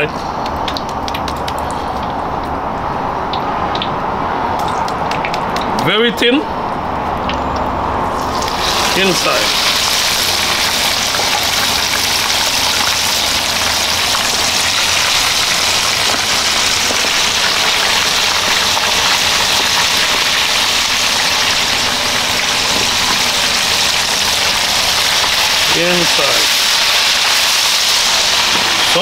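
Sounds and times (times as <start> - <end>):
chicken sizzling in hot oil: 8.1 - 29.0.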